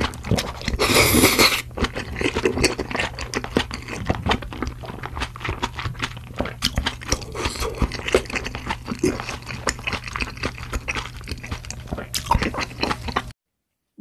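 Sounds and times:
wet chewing: 0.0s - 13.3s.

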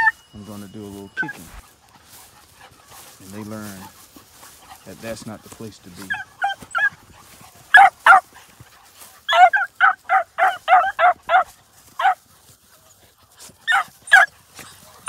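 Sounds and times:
puppies yipping: 0.0s - 15.0s.

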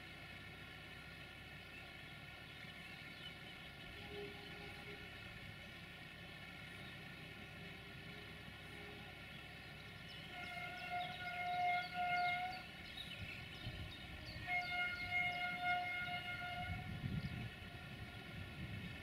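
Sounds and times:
freight train rumble: 0.0s - 19.0s
locomotive horn blasts: 3.8s - 5.4s, 8.2s - 9.3s, 10.2s - 19.0s.

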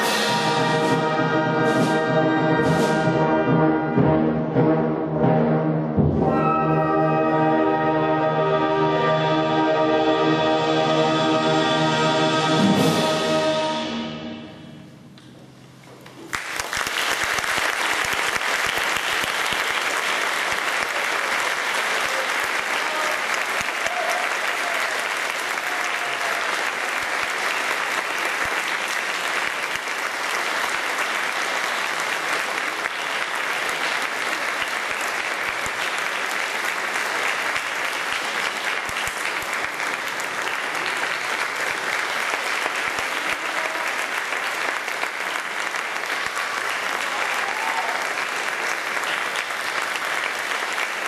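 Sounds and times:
audience applauding: 16.2s - 51.0s.

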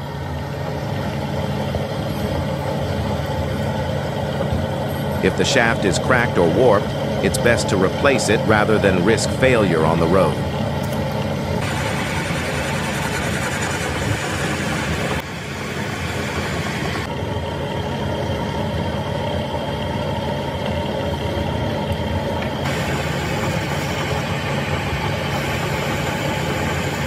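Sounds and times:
metal lathe humming: 0.0s - 27.0s.

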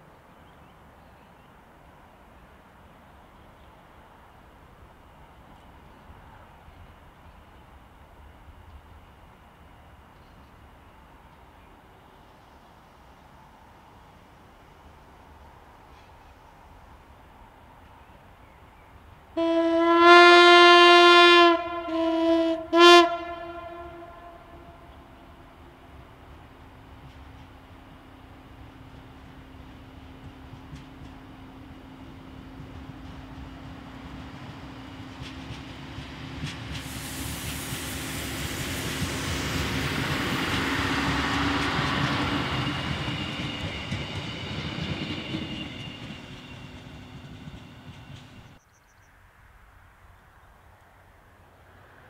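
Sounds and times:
diesel train passing: 1.6s - 48.8s
train horn blasts: 19.4s - 25.7s.

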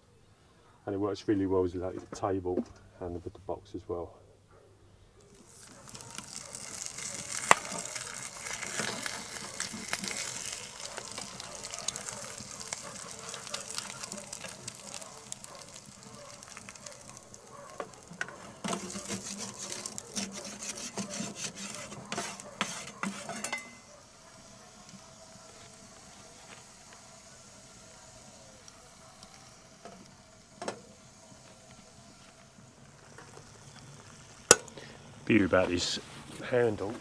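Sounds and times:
eggs sizzling in frying pan: 5.1s - 37.0s
pan and utensil clicks and scrapes: 5.2s - 23.9s.

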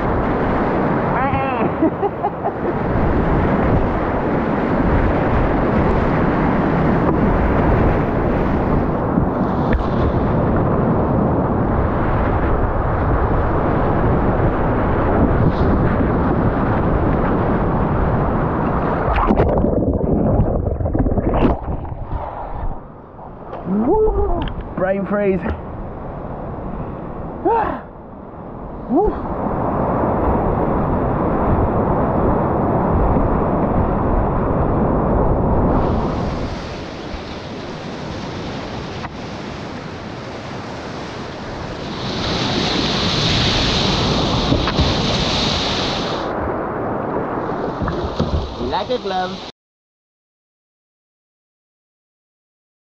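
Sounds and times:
muffled underwater rush: 2.2s - 24.8s, 41.3s - 49.5s
kayak splashes: 41.4s - 46.5s.

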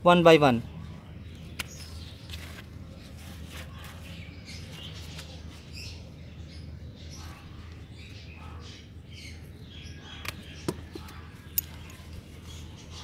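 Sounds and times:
rustling leaves: 1.9s - 6.0s.

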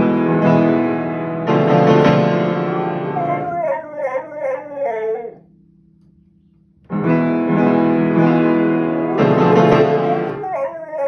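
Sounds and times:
piano chords ringing: 0.0s - 6.1s, 6.8s - 11.0s
dog howling: 2.8s - 5.4s, 9.1s - 11.0s.

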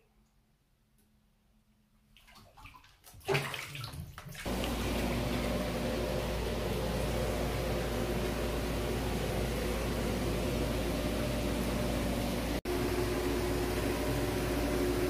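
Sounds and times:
water sloshing in tub: 2.1s - 11.4s
low pump hum: 2.3s - 15.0s
whirlpool jets churning water: 3.3s - 15.0s.

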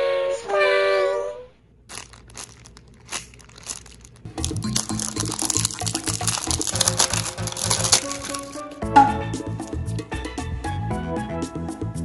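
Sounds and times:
plastic bag crinkling: 1.8s - 8.8s.

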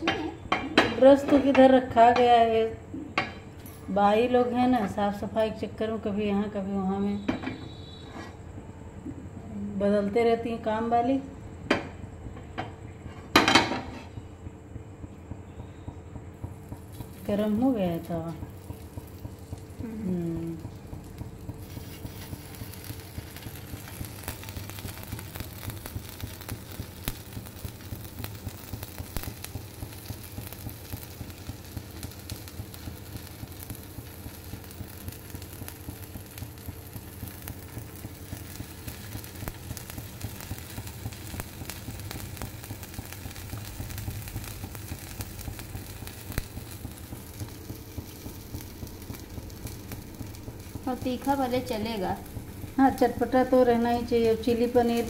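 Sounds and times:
frying in hot oil sizzling: 16.3s - 55.0s.

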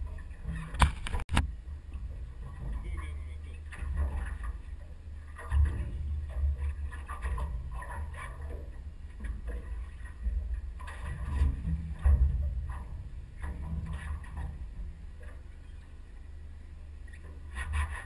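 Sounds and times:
wind and water rumble: 0.0s - 18.0s
knocks against hull: 0.5s - 1.6s.

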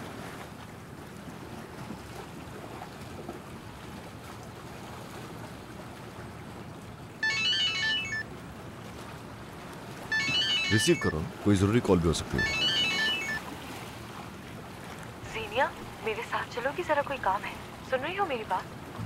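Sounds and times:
mobile phone ringtone: 7.2s - 8.3s, 10.1s - 11.3s, 12.3s - 13.4s.

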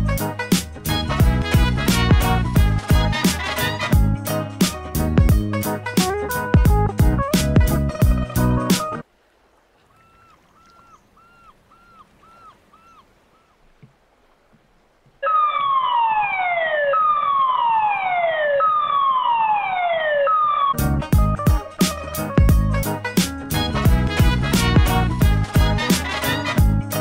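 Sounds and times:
warning siren falling in pitch: 15.2s - 20.8s.

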